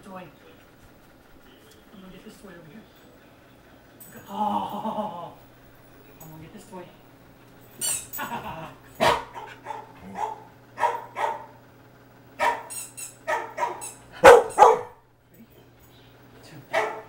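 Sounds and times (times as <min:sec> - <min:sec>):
dog barking: 0:09.0 - 0:11.6, 0:12.4 - 0:15.0, 0:16.7 - 0:17.0.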